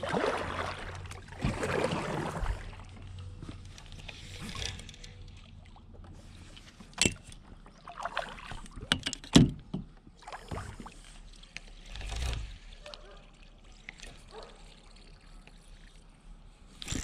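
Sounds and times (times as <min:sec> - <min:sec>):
paddle splashing in water: 0:00.0 - 0:03.2, 0:07.6 - 0:09.0, 0:10.1 - 0:15.4.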